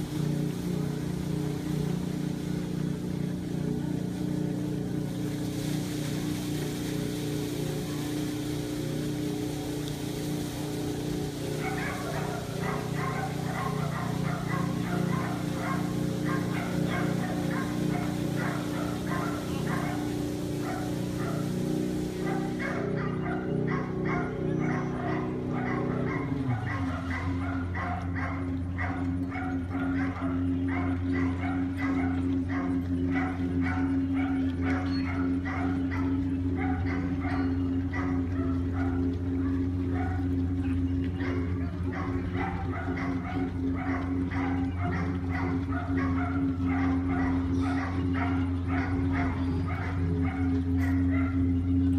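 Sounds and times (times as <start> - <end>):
boat engine droning: 0.0 - 51.9
dog barking rapidly: 10.2 - 40.5, 41.1 - 51.8.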